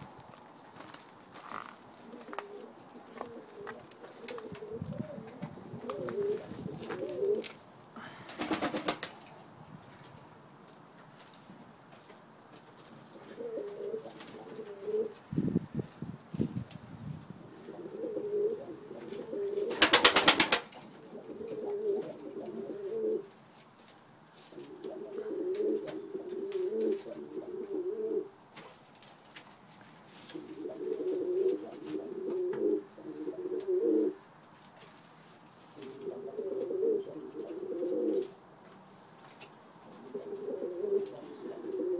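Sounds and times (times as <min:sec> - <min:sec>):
pigeons cooing: 0:01.9 - 0:09.1, 0:13.1 - 0:15.2, 0:17.5 - 0:23.3, 0:24.5 - 0:28.4, 0:30.3 - 0:34.2, 0:35.8 - 0:38.4, 0:39.9 - 0:41.9
rapid wing flaps: 0:08.4 - 0:09.2, 0:19.7 - 0:20.7.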